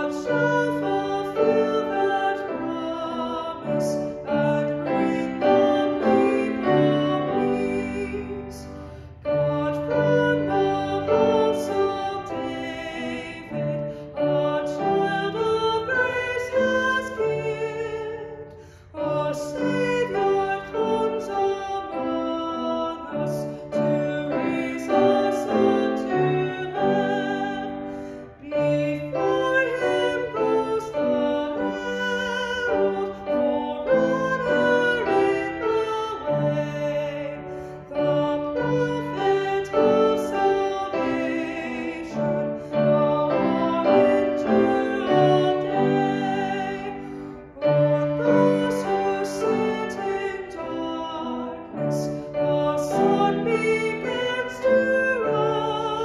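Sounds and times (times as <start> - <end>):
piano accompaniment: 0.0 - 56.0
woman singing: 0.0 - 56.0.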